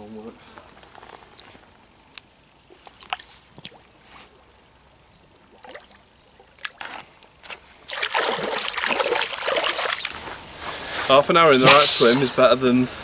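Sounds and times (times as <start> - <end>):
water dripping: 1.4 - 10.2
fish splashing in water: 5.4 - 6.8, 7.8 - 10.2
hands swishing in water: 7.9 - 10.3.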